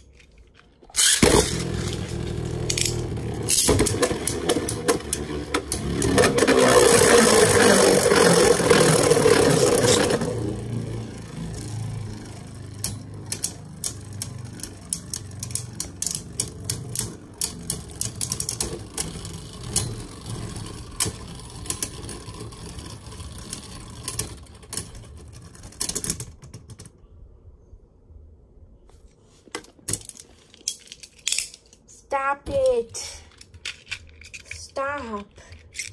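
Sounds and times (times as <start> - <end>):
spinning tops whirring: 0.9 - 26.4.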